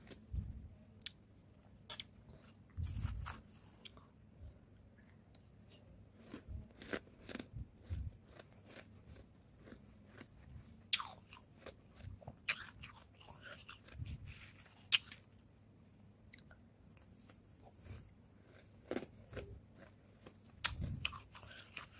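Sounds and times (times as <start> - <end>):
frost being chewed crunching: 6.2 - 15.3, 18.4 - 21.9.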